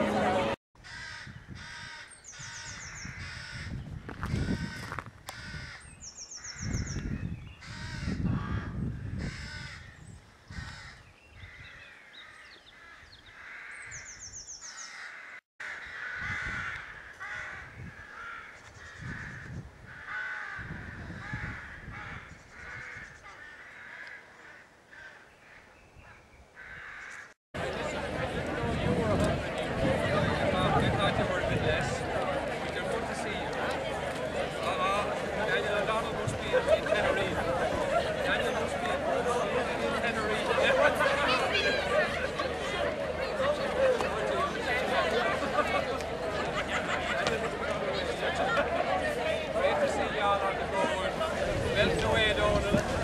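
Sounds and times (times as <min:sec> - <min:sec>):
crows cawing: 0:00.8 - 0:06.7, 0:07.6 - 0:25.7, 0:26.6 - 0:27.3
wind rumble on microphone: 0:00.9 - 0:12.0, 0:15.9 - 0:23.3, 0:27.7 - 0:32.3, 0:36.0 - 0:38.1, 0:51.3 - 0:53.0.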